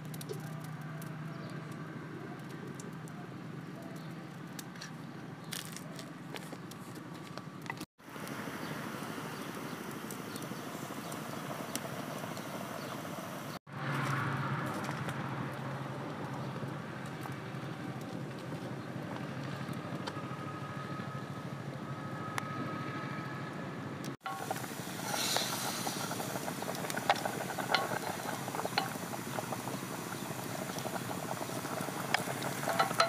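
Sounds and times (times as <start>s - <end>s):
burning sticks crackling and popping: 0.0s - 20.2s, 24.2s - 33.0s
rushing flames: 8.0s - 14.0s, 24.2s - 33.0s.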